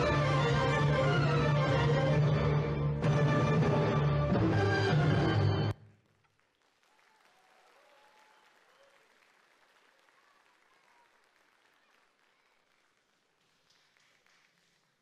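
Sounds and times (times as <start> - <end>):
faint audience applause: 5.8 - 15.0.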